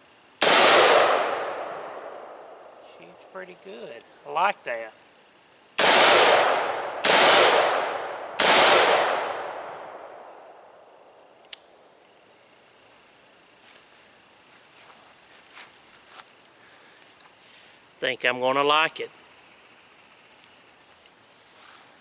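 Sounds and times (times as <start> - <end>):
gunshots with long echo: 0.4 - 2.6, 5.8 - 11.0
faint click: 11.4 - 11.7.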